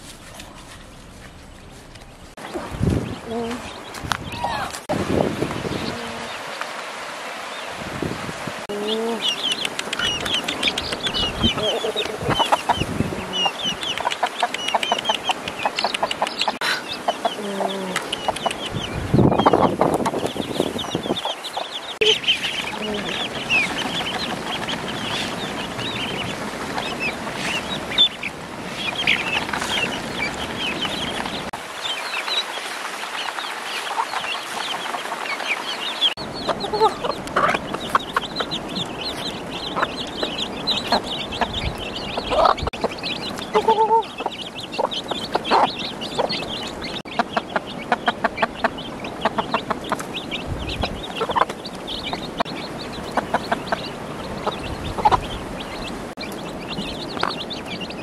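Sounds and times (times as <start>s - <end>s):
chicks peeping: 0.3s - 6.6s, 7.5s - 58.0s
ducklings peeping: 0.3s - 6.6s, 7.5s - 58.0s
hen clucking: 1.3s - 4.9s, 8.7s - 31.5s, 33.9s - 58.0s.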